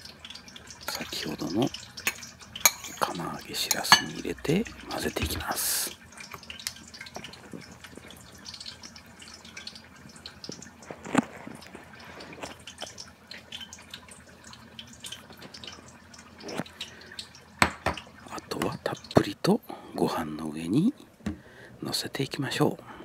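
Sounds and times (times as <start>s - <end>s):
wet squishes of stirred food: 0.0s - 14.0s.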